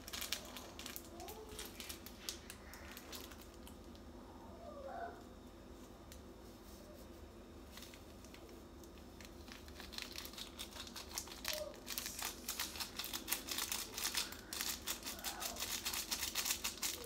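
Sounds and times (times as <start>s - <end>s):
seasoning packet crinkling: 0.0s - 3.8s, 7.8s - 17.0s.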